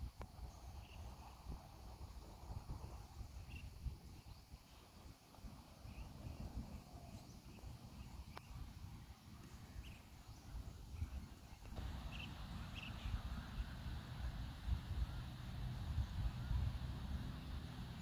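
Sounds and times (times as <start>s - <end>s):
wind rumble on microphone: 0.0s - 18.0s
bird chirps: 9.7s - 13.7s.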